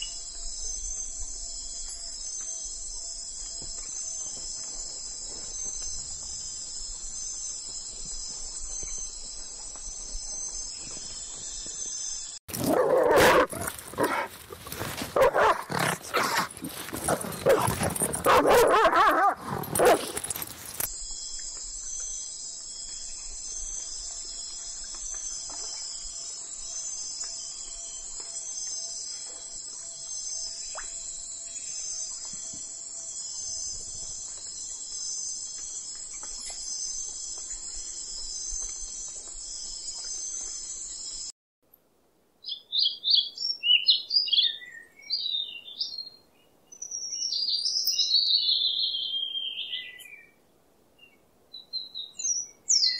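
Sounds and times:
dog barking: 0:12.6 - 0:14.3, 0:15.2 - 0:20.2.

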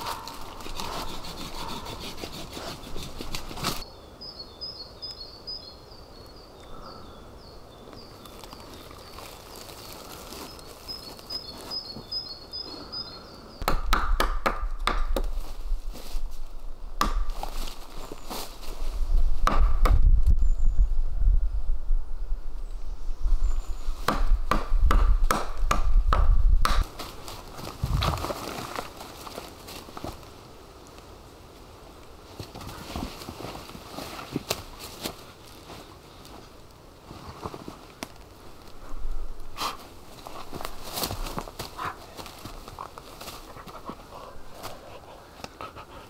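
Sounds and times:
dry leaves and twigs rustling: 0:00.0 - 0:03.9, 0:07.7 - 0:13.2, 0:15.1 - 0:19.4, 0:26.7 - 0:46.0
small bird chirping: 0:10.5 - 0:13.6
wooden log knocks and thuds: 0:13.6 - 0:15.3, 0:17.0 - 0:17.4, 0:19.4 - 0:20.2, 0:24.1 - 0:26.9.

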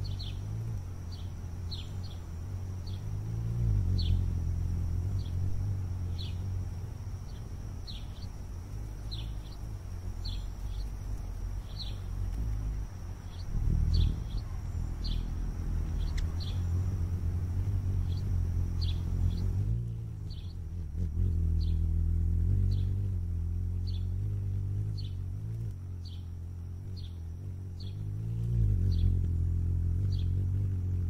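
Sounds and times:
steady low rumble: 0:00.0 - 0:31.0
high bird chirps: 0:13.2 - 0:16.9.

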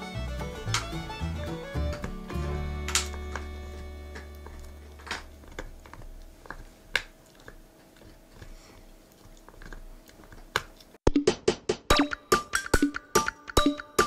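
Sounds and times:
music with wood-block strikes: 0:00.0 - 0:04.3, 0:11.1 - 0:14.0
dog chewing: 0:03.2 - 0:11.0.

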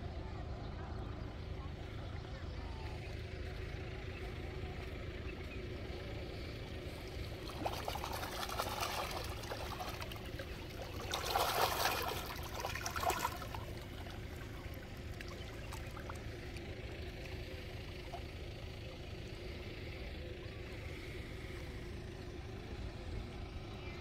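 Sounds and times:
steady low rumble: 0:00.0 - 0:24.0
fish splashing and slurping: 0:06.4 - 0:19.5.

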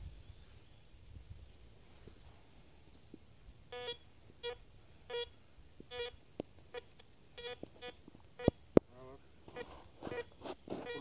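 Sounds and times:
metal detector beeping: 0:03.7 - 0:08.6, 0:09.4 - 0:11.0.

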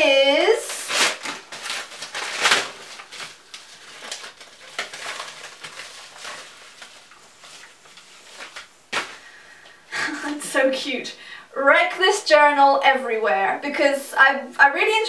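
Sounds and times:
envelope crinkling and rustling: 0:00.4 - 0:09.4.

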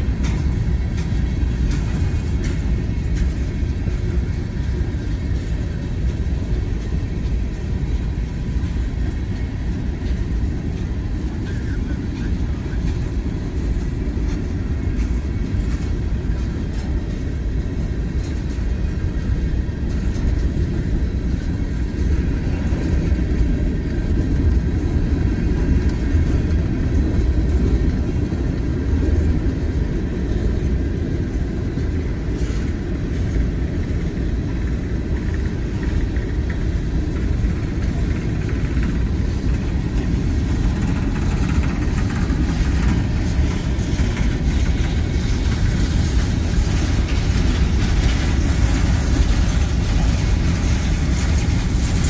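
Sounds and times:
train wheels rumbling on rails: 0:00.0 - 0:52.0.

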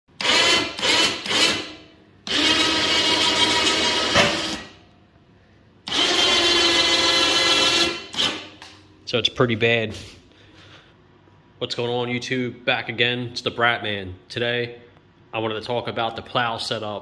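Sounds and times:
electric winch motor whine: 0:00.2 - 0:04.8, 0:05.8 - 0:08.4.

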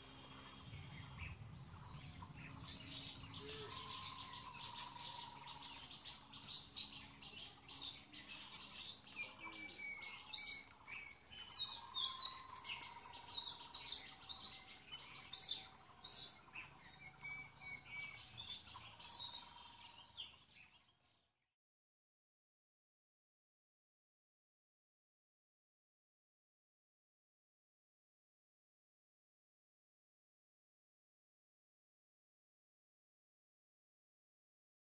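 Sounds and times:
birds chirping: 0:00.0 - 0:21.5.

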